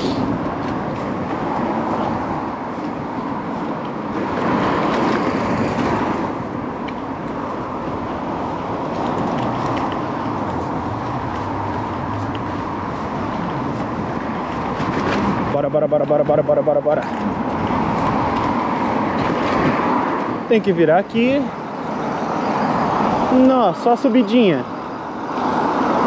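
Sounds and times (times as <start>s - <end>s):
road traffic: 0.0s - 26.0s
wind rushing: 17.3s - 20.5s.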